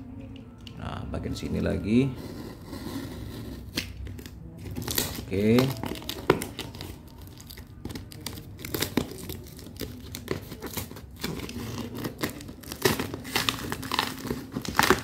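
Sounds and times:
tape tearing and crinkling: 3.6 - 15.0.

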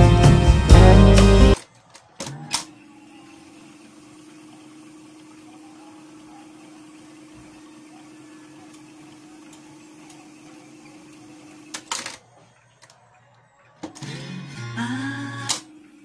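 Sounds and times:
tape deck mechanical hum: 0.0 - 16.0
tape deck click: 1.6 - 2.8, 11.4 - 13.0, 15.3 - 15.8.

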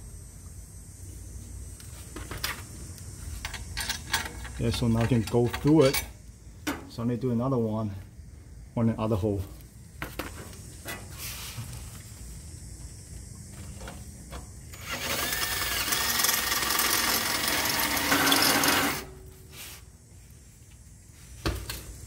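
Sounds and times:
cordless drill boring metal: 14.7 - 19.1.

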